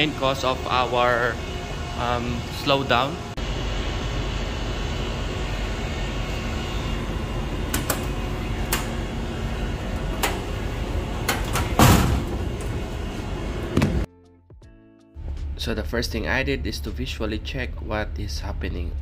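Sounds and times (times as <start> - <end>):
machinery hum: 0.0 - 14.1
metal panel door clicks and clunk: 11.2 - 12.6.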